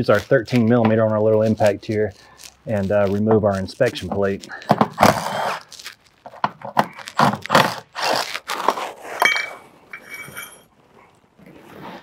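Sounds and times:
impact wrench bursts: 4.6s - 5.6s
metal bolts clinking and scraping: 9.2s - 10.7s.

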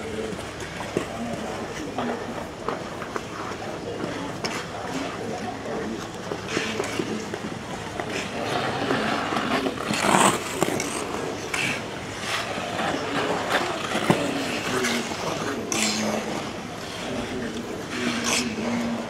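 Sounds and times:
ice skate blades scraping: 6.3s - 19.0s.

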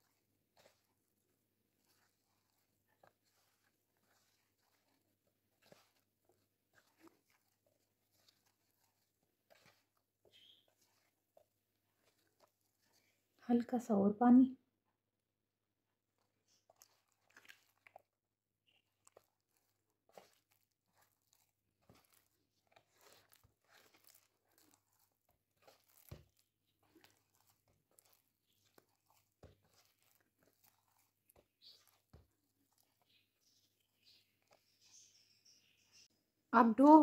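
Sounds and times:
hand kneading sticky dough: 0.0s - 14.2s, 14.8s - 36.1s.

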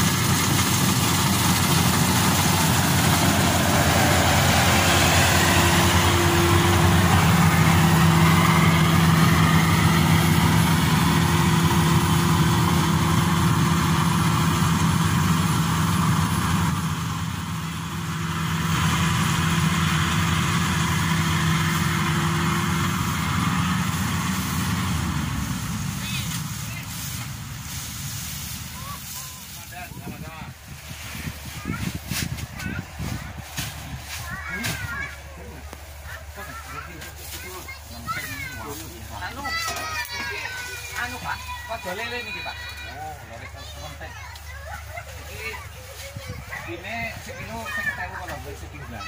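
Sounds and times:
harvester engine hum: 0.0s - 49.0s.

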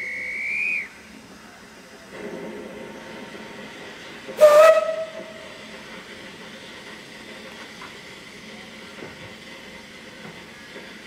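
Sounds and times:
steam locomotive whistle blast: 0.0s - 1.0s, 4.4s - 5.5s.

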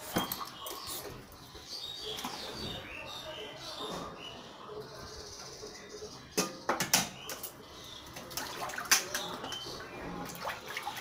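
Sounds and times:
water splashing: 10.2s - 11.0s.

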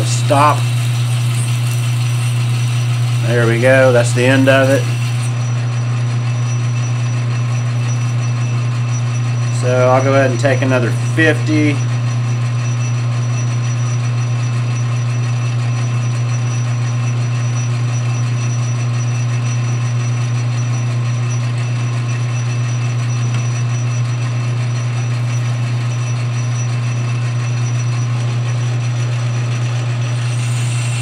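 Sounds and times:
metal lathe humming: 0.0s - 13.0s, 21.4s - 31.0s.

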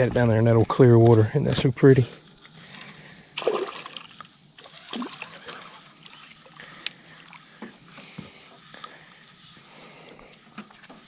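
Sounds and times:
fish splashing at water surface: 3.4s - 7.4s.

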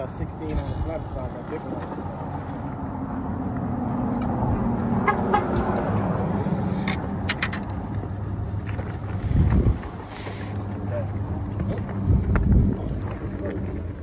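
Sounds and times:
sharp clicks and rattles: 6.6s - 8.9s.

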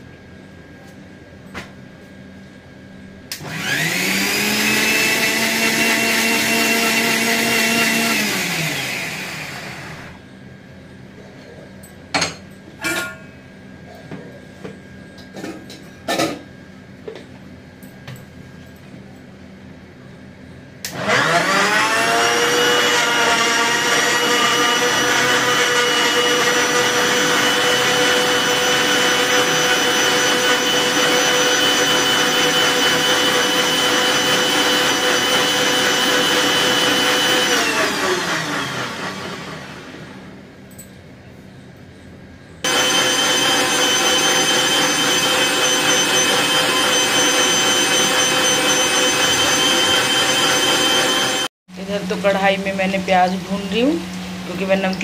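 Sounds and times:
mixer grinder motor whining: 3.3s - 10.2s, 20.8s - 40.4s, 42.6s - 51.9s.

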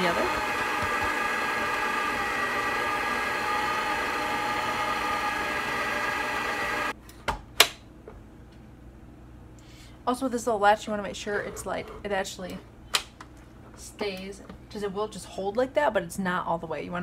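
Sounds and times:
stand mixer motor whining: 0.0s - 6.9s
mixer head clacks: 0.1s - 6.9s.

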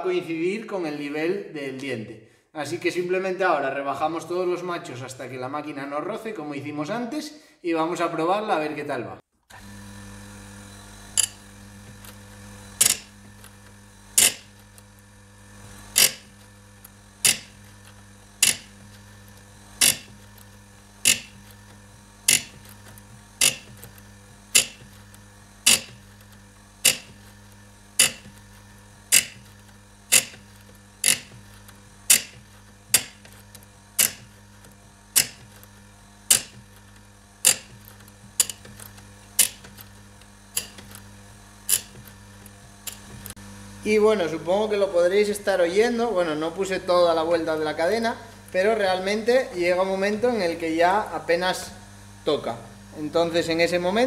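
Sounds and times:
grinding wheel touches: 9.5s - 43.4s, 44.4s - 51.8s
electric motor humming: 9.5s - 54.0s.

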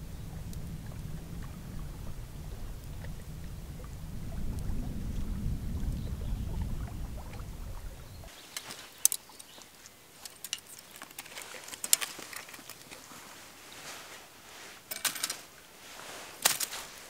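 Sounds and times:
low rumble: 0.0s - 8.3s
lure and tin clicking: 10.2s - 13.0s.

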